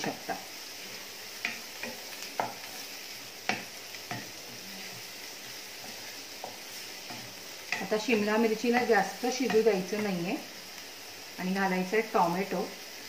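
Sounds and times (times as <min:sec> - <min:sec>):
vegetables sizzling in oil: 0:00.0 - 0:13.0
spatula knocking and scraping pan: 0:01.4 - 0:08.1.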